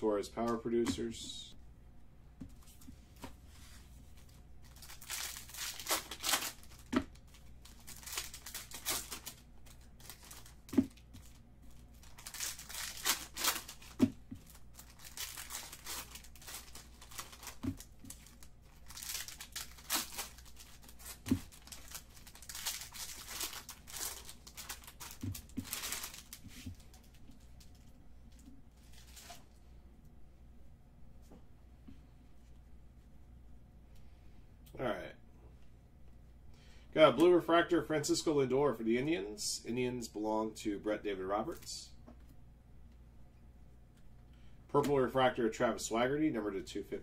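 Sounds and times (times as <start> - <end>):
card pack wrappers tearing and crinkling: 4.6 - 27.9, 28.8 - 29.4.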